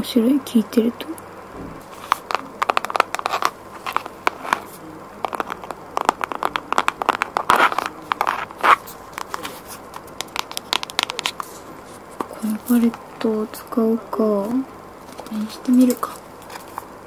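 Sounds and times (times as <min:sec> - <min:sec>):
rustling scrapes: 0:01.8 - 0:09.8
fingernails tapping on cardboard: 0:02.0 - 0:04.6, 0:05.3 - 0:09.4, 0:10.2 - 0:11.4.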